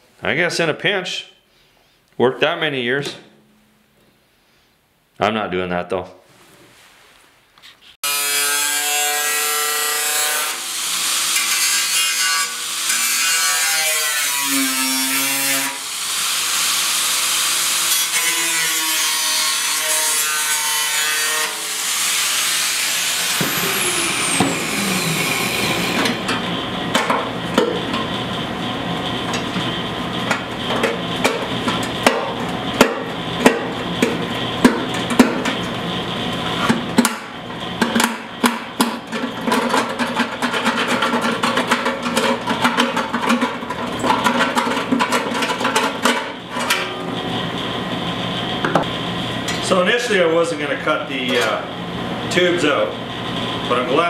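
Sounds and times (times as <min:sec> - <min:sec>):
angle grinder cutting metal: 0:08.0 - 0:27.9.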